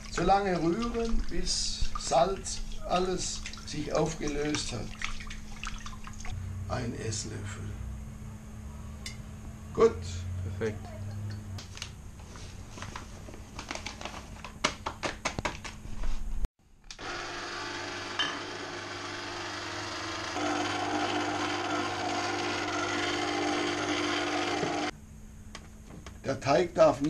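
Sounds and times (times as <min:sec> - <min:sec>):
stand mixer motor running: 0:17.0 - 0:24.9.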